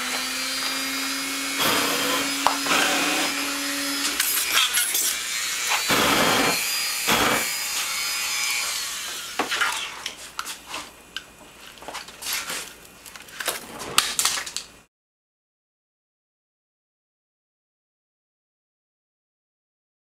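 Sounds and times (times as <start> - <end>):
rotary tool whining: 0.0 - 10.2
hissing torch flame: 5.7 - 7.6
flames popping and crackling: 11.7 - 14.7.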